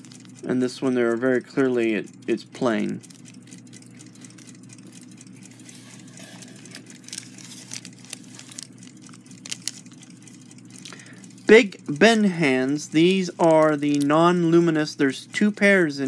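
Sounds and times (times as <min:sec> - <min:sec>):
low steady hum: 0:00.0 - 0:16.0
paper packet crinkling: 0:05.6 - 0:10.0.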